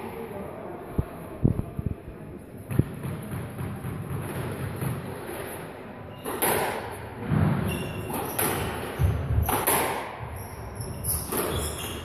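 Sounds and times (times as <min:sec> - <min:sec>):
squash ball smacking rackets and walls: 0:02.7 - 0:12.0
shoes squeaking on wooden floor: 0:10.2 - 0:12.0.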